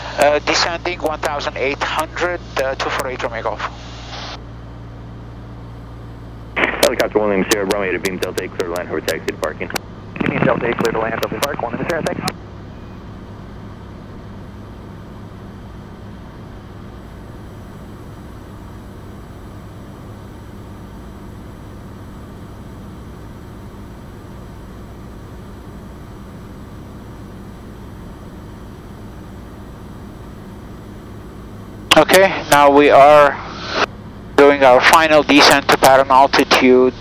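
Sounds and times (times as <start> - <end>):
propeller plane engine droning: 0.0 - 37.0
airflow noise: 28.4 - 35.4.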